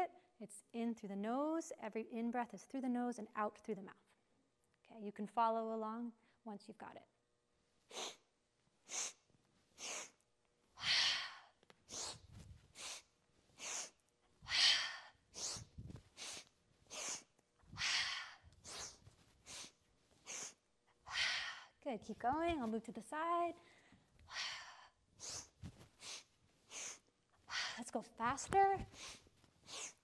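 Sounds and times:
woman breathing quickly: 0:07.8 - 0:21.8, 0:23.6 - 0:27.9, 0:28.8 - 0:30.0.

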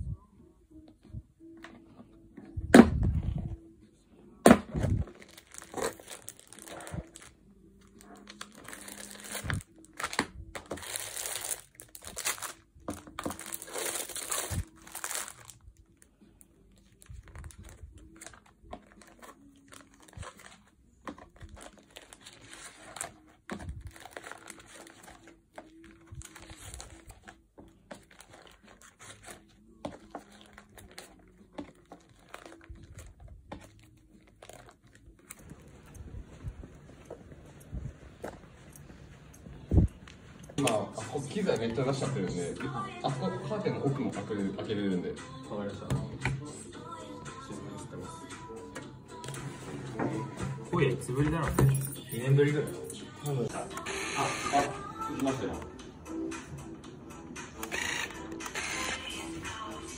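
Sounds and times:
plastic sleeves rustling and crinkling: 0:04.8 - 0:42.0.

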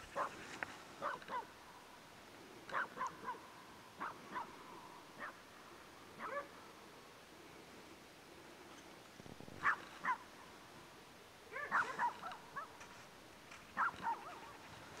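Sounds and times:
low background hiss: 0:00.0 - 0:15.0
dogs barking: 0:00.2 - 0:00.4, 0:01.0 - 0:01.5, 0:02.7 - 0:04.6, 0:05.2 - 0:05.4, 0:06.2 - 0:06.6, 0:09.6 - 0:10.3, 0:11.5 - 0:12.9, 0:13.8 - 0:14.6.

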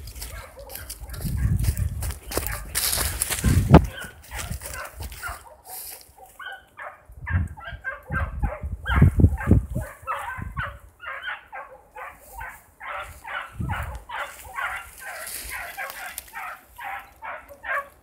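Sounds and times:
dogs baying: 0:00.2 - 0:18.0
dull low thumps: 0:03.1 - 0:04.7.

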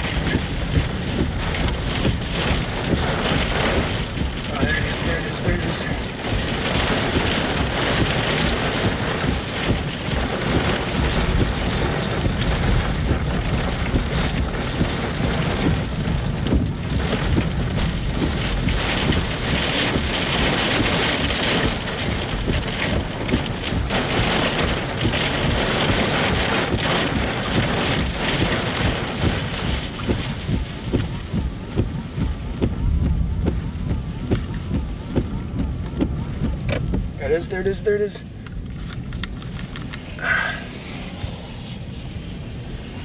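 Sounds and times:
heavy rain: 0:00.0 - 0:43.0
strong wind buffeting: 0:38.2 - 0:43.0.

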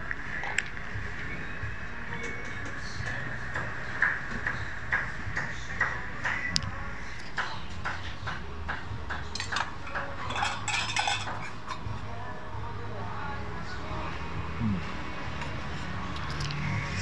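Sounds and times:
metal spoons clinking on pots: 0:09.3 - 0:11.8.

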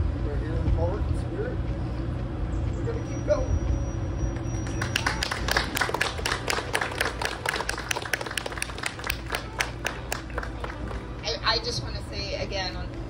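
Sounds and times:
steady low hum: 0:00.0 - 0:13.0
people applauding: 0:04.4 - 0:11.4.

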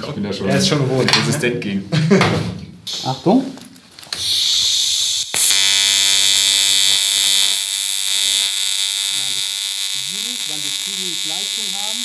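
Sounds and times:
welding arc hiss and buzz: 0:02.9 - 0:03.4, 0:04.0 - 0:12.0.

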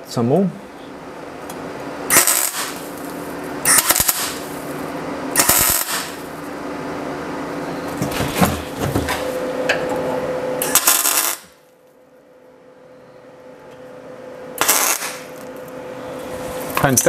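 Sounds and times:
steady hum: 0:00.0 - 0:17.0
welding arc crackle: 0:02.1 - 0:06.5, 0:10.6 - 0:11.7, 0:14.6 - 0:15.5.

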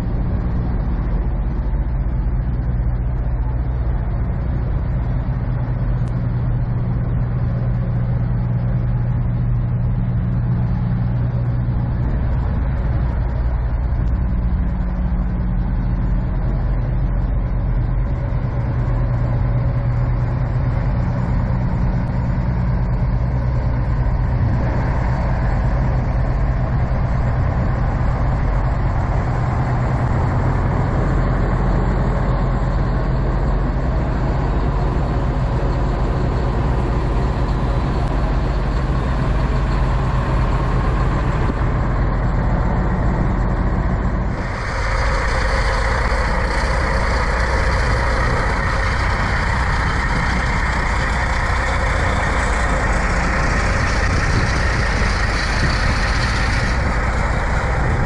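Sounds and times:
diesel truck engine idling: 0:00.0 - 0:58.0
idling truck with hiss: 0:00.0 - 0:58.0.

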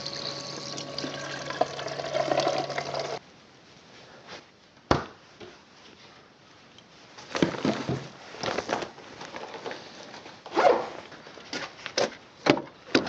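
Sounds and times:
plastic bag rustling: 0:07.2 - 0:11.3.

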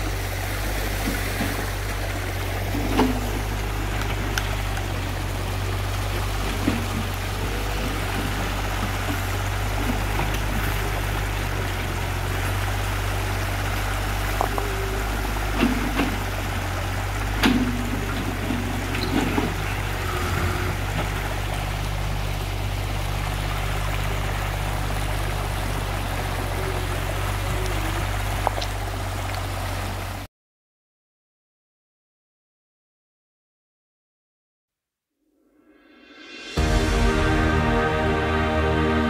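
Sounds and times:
diesel engine hum: 0:00.0 - 0:30.3, 0:36.4 - 0:39.0
stream rushing over rocks: 0:00.0 - 0:30.3.

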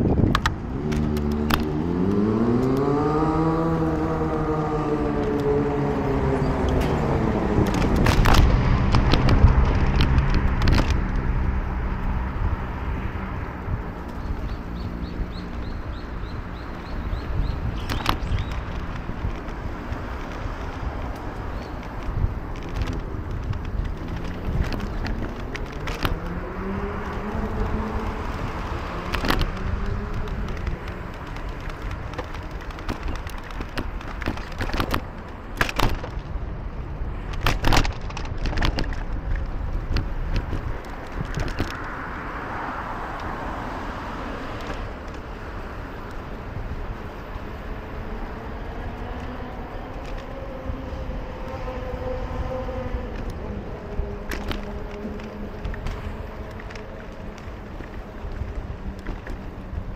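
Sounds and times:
city street traffic rumble: 0:00.0 - 0:59.9
engine humming steadily: 0:00.0 - 0:59.9
sharp clicks and knocks: 0:00.1 - 0:02.9, 0:06.6 - 0:11.4, 0:17.7 - 0:36.4, 0:37.3 - 0:42.1
engine rising in pitch: 0:00.7 - 0:13.6.

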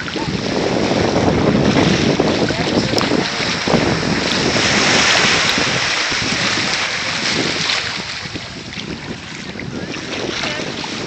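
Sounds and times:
small waves washing: 0:00.0 - 0:11.0
wind on microphone: 0:00.0 - 0:11.0.

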